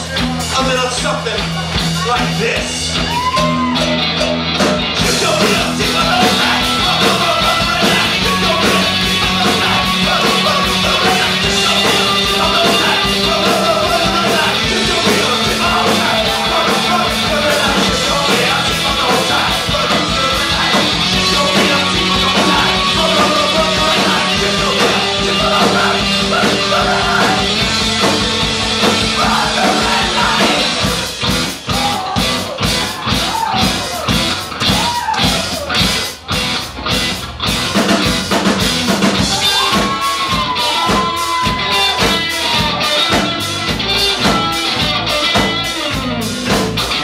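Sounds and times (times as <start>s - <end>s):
bass guitar: 0.0s - 47.0s
drums: 0.0s - 47.0s
electric guitar: 1.4s - 47.0s
man singing into microphone: 5.0s - 27.5s.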